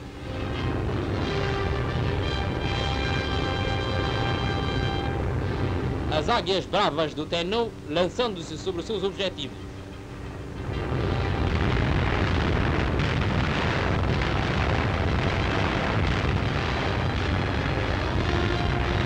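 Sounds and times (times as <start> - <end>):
aircraft engines rumbling: 0.0 - 19.0
explosions: 10.6 - 19.0.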